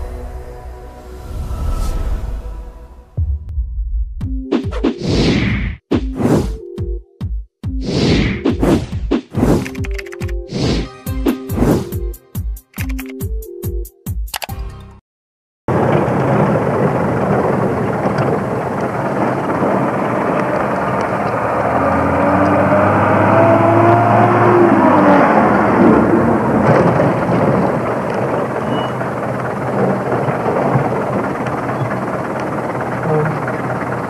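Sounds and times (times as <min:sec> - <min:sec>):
oncoming truck passing: 0:15.7 - 0:34.0
vehicle engine and tyres rumbling: 0:15.7 - 0:34.0.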